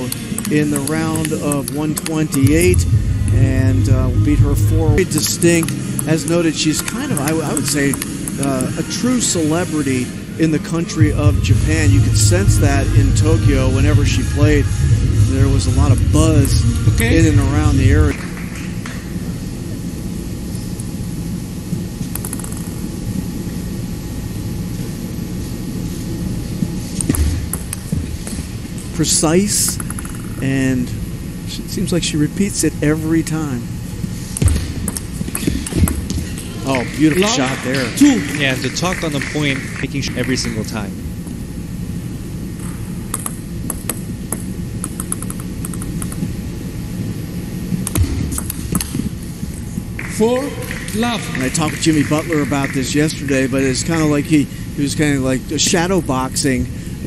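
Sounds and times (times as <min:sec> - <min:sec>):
low hum: 0:00.0 - 0:57.0
low background rumble: 0:02.3 - 0:06.7, 0:09.9 - 0:22.1
table tennis ball bouncing: 0:34.4 - 0:36.3
table tennis ball clicks: 0:43.1 - 0:46.3.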